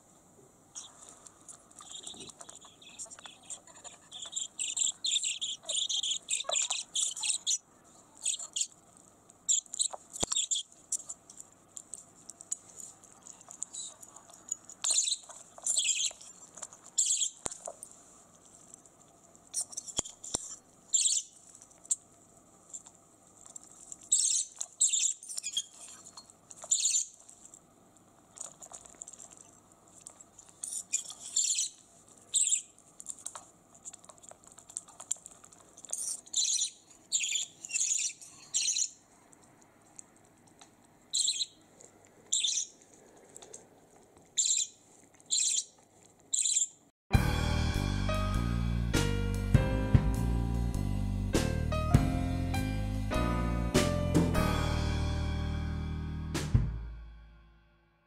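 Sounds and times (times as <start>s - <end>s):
budgerigar chirping: 1.8s - 7.6s, 8.2s - 8.7s, 9.5s - 10.7s, 14.8s - 16.2s, 17.0s - 17.4s, 20.9s - 21.3s, 24.1s - 25.9s, 26.7s - 27.2s, 30.6s - 32.7s, 36.0s - 39.0s, 41.1s - 41.6s, 42.3s - 42.8s, 44.4s - 46.8s.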